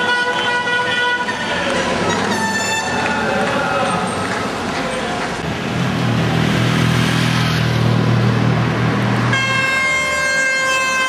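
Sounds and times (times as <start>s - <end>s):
car horn long blast: 0.0s - 3.0s, 9.3s - 11.0s
road noise: 0.0s - 11.0s.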